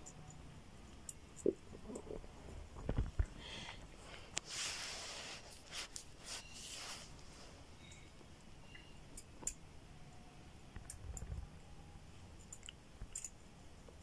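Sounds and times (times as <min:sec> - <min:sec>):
small metallic clicks: 0:12.4 - 0:13.4.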